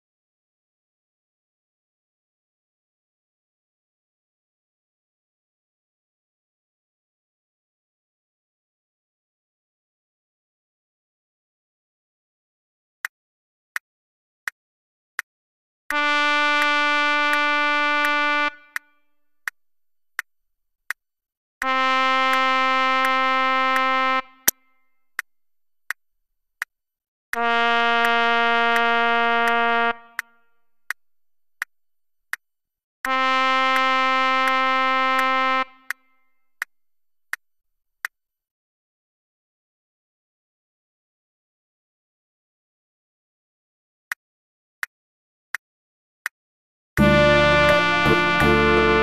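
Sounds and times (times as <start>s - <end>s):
trumpet playing long notes: 15.9s - 18.9s, 21.6s - 24.6s, 27.3s - 30.3s, 33.1s - 36.0s, 47.0s - 49.0s.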